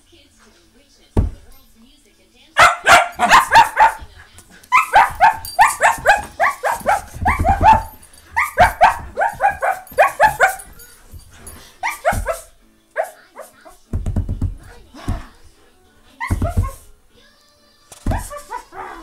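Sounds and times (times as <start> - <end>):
puppy play-barking: 2.6 - 13.7, 18.1 - 19.0.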